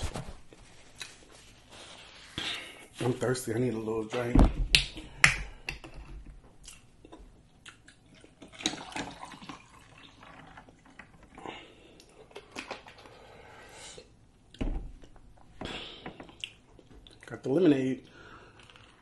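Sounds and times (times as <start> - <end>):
drink pouring into glass of ice: 8.4 - 10.7.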